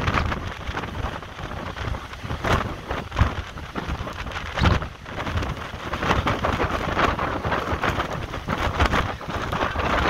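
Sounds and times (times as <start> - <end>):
surf crashing on rocks: 0.0 - 10.0
wind buffeting microphone: 0.0 - 10.0.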